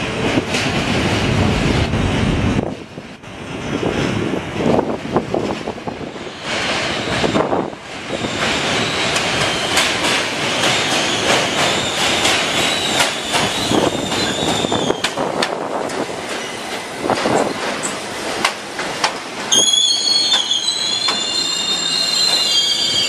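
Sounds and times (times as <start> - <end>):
train wheels clacking on rails: 0.0 - 1.8, 4.0 - 22.6
high wheel squeal: 10.8 - 15.2, 19.5 - 23.0.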